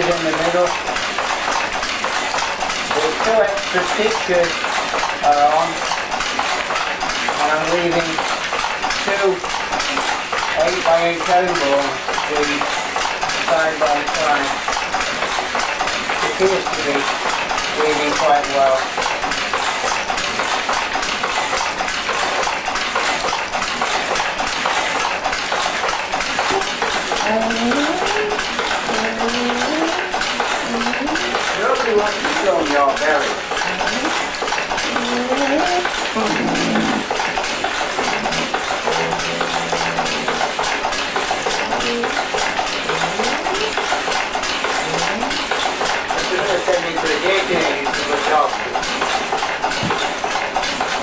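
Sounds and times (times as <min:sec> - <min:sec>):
loom clattering: 0:00.0 - 0:51.0
rising voice-like tone: 0:34.9 - 0:37.1, 0:38.0 - 0:40.5.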